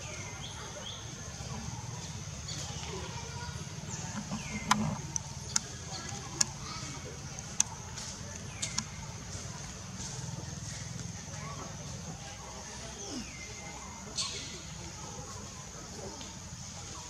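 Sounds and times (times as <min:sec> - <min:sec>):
sharp clicks: 0:04.1 - 0:06.6, 0:08.6 - 0:09.0.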